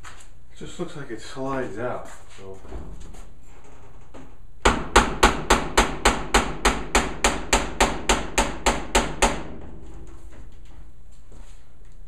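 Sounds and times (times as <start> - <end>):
knocking on metal dryer cabinet: 4.6 - 9.9.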